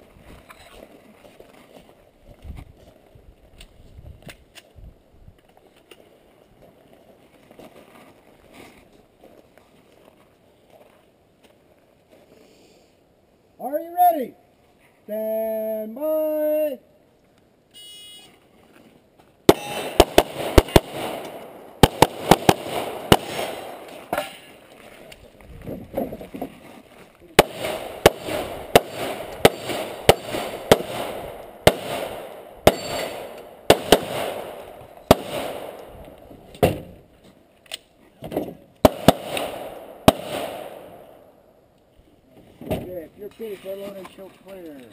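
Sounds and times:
handgun shots: 27.4 - 35.9, 38.9 - 41.0.

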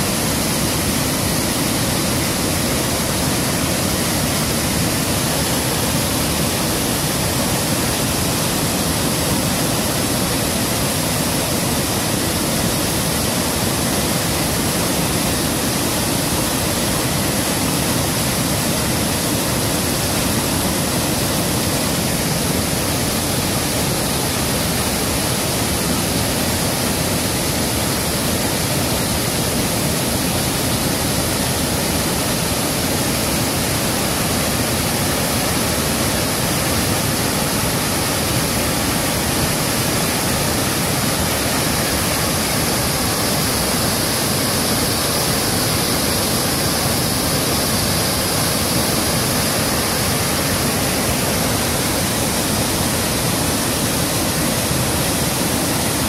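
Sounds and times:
river water rushing over rocks: 0.0 - 56.0.

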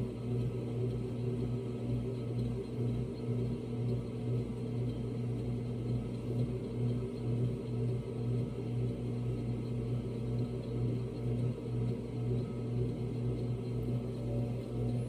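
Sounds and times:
potter's wheel motor humming: 0.0 - 15.0.

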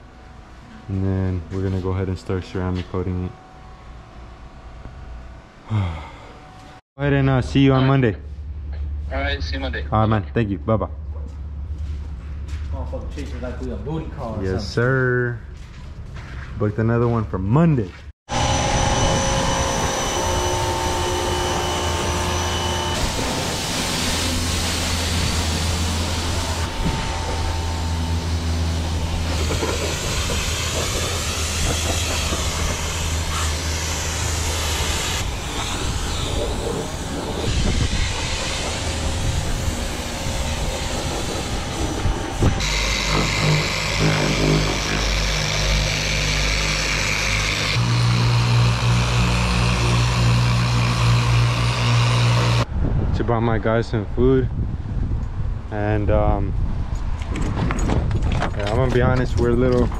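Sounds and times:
electric car polisher running: 18.3 - 52.7
pump humming: 18.3 - 52.7
pressure washer spray hissing: 22.9 - 40.0.

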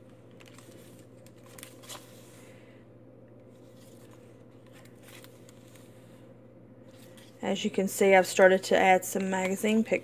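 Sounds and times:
paper pages rustling: 0.0 - 2.4, 3.4 - 6.0
steady low hum: 0.0 - 10.0.

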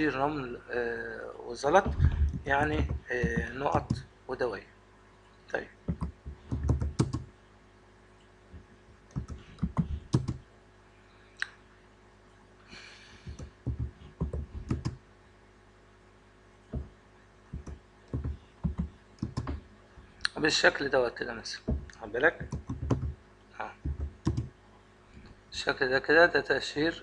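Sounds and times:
keyboard typing: 1.8 - 4.1, 5.9 - 7.3, 9.1 - 10.4, 13.2 - 15.0, 17.5 - 19.7, 21.7 - 23.2, 23.8 - 24.5.

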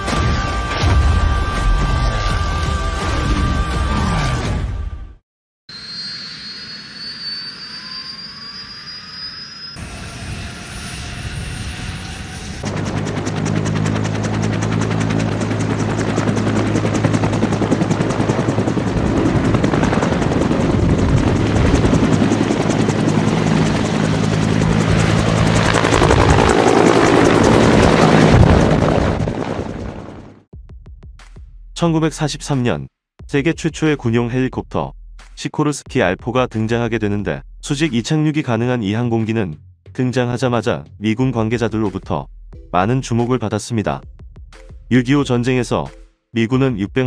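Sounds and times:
turbine whine rising: 5.7 - 16.4
helicopter rotor beating: 9.8 - 30.5.

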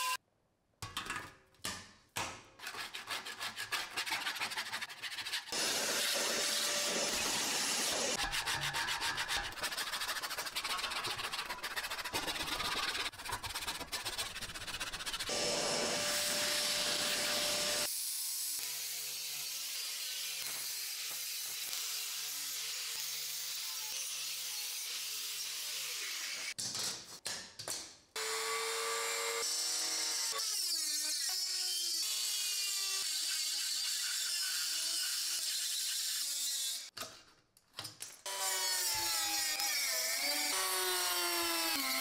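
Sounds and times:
brush scrubbing metal: 2.7 - 7.3, 8.2 - 15.9
angle grinder grinding: 5.5 - 13.1, 15.2 - 17.9.

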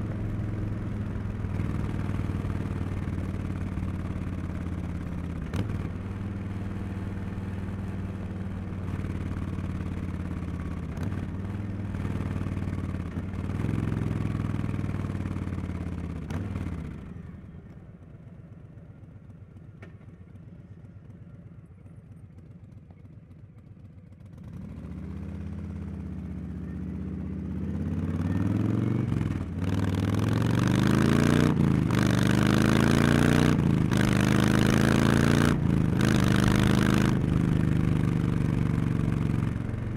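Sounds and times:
motorcycle engine revving: 24.2 - 39.9.

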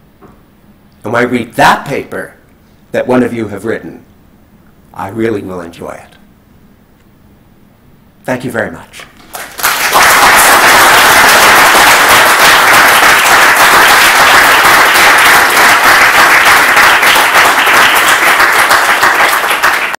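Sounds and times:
audience applauding: 9.2 - 20.0.

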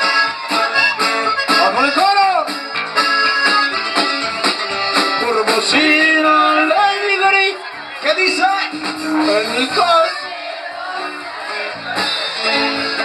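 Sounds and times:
lead melody: 0.0 - 6.8
drum kit steady beat: 0.0 - 7.2, 8.0 - 13.0
guitars: 0.0 - 13.0.

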